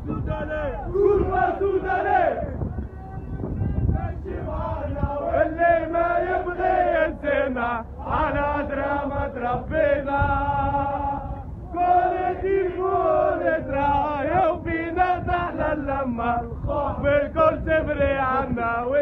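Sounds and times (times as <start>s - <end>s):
crowd of men chanting: 0.8s - 2.6s, 3.6s - 19.0s.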